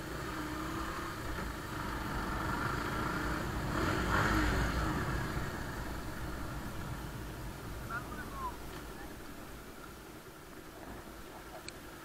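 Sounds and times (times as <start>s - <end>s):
motorcycle engine running: 0.0s - 8.0s.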